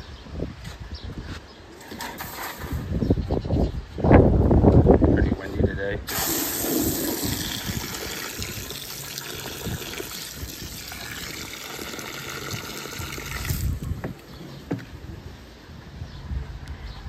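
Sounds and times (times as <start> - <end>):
hose water spraying into concrete: 6.1 - 14.0.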